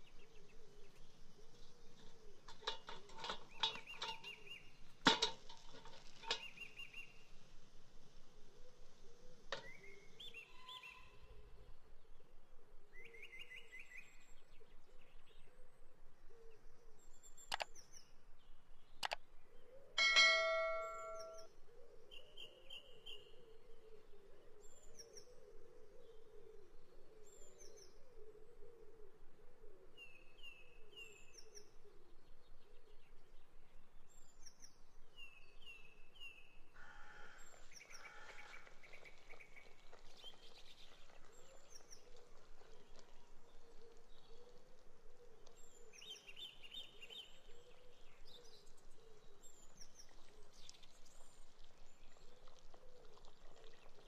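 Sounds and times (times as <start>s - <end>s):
birds chirping: 0.0s - 7.1s, 20.0s - 21.5s
short ringing note: 20.0s - 21.4s
sharp ringing clicks: 20.0s - 21.5s.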